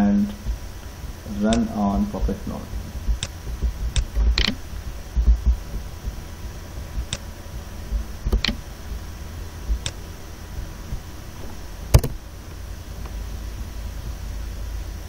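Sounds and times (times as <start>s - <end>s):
dull low thumps: 0.0s - 15.0s
low room hum: 0.0s - 15.0s
computer mouse clicks: 3.1s - 4.6s, 8.3s - 8.6s, 9.7s - 10.0s.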